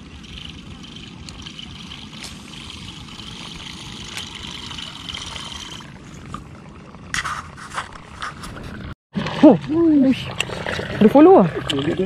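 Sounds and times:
fishing reel whirring: 0:00.0 - 0:06.1
low steady rumble: 0:00.0 - 0:08.9.

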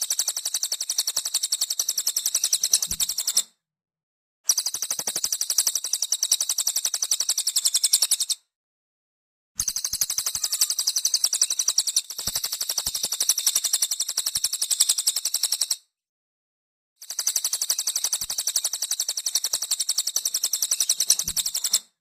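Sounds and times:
songbird high-pitched trill: 0:09.6 - 0:12.9.

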